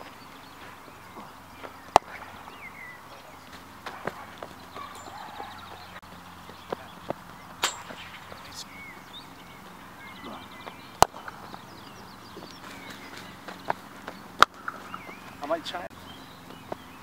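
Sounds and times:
birds chirping: 0.0s - 17.0s
bat striking cricket ball: 1.2s - 2.4s, 3.5s - 4.9s, 6.7s - 8.4s, 10.7s - 11.6s.

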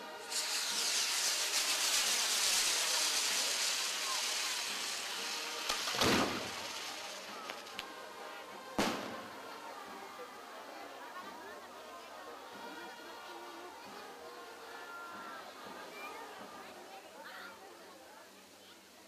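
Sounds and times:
fireworks hissing and crackling: 0.0s - 17.8s
sharp bang: 5.7s - 7.0s.

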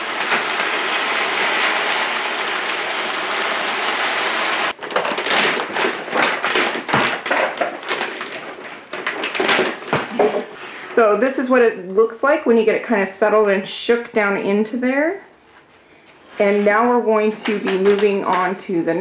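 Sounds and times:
plastic bag crinkling: 4.7s - 10.3s.

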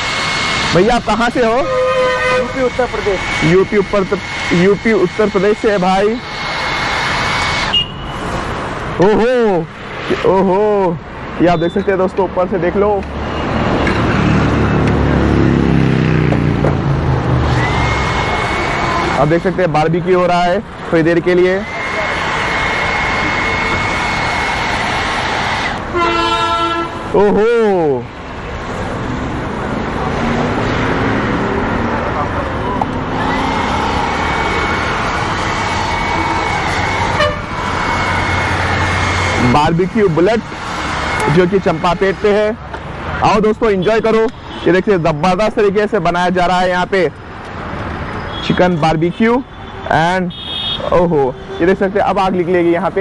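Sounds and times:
hair dryer whining: 0.0s - 7.8s, 17.3s - 20.2s, 20.9s - 26.2s, 32.6s - 42.5s
thin high whine: 0.0s - 8.3s.

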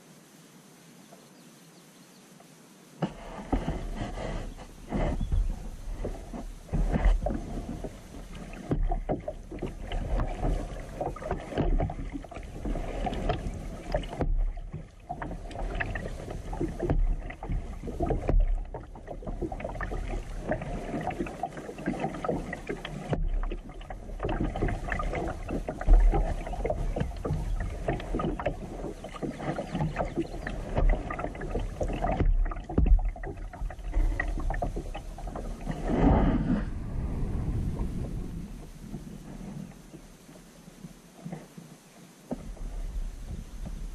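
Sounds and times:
low bumps: 3.0s - 20.7s, 29.7s - 40.4s
kayak paddle splashing: 3.0s - 43.9s.

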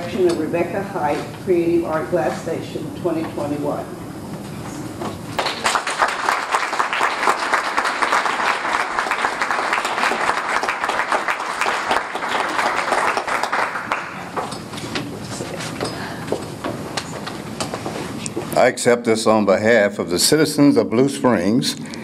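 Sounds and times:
audience applauding: 5.4s - 14.5s.

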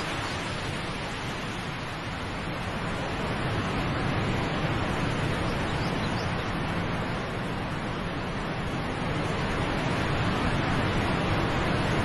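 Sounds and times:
waterfall rushing: 0.0s - 7.8s.

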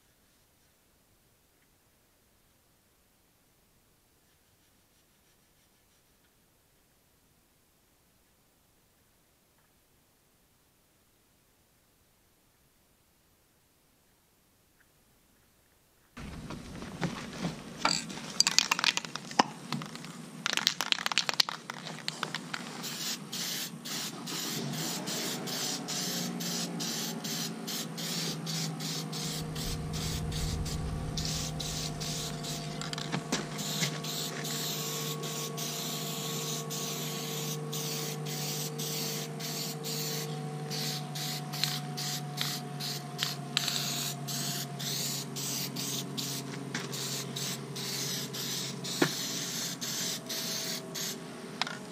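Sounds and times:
spray can ball rattling: 17.8s - 24.5s
faint steady hum: 29.2s - 35.8s.

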